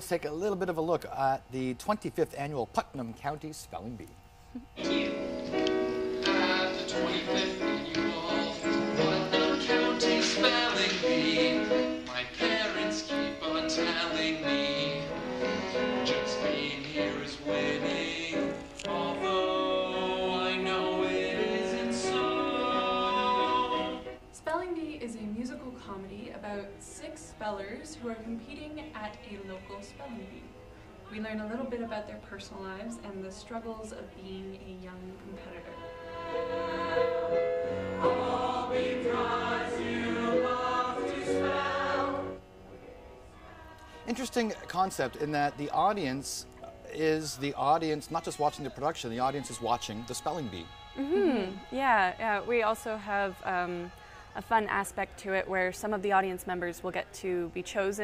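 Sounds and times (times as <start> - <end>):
several voices singing together: 4.8 - 24.2, 35.4 - 42.4, 43.4 - 46.3, 47.4 - 51.8.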